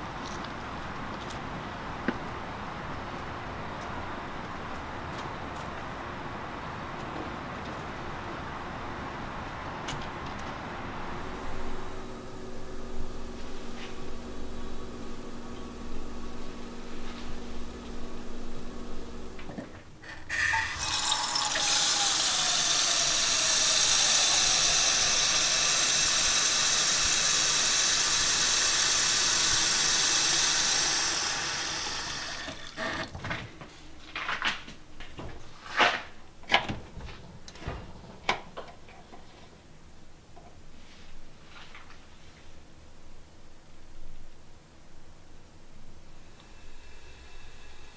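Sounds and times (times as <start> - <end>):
low steady hum: 10.5 - 34.2.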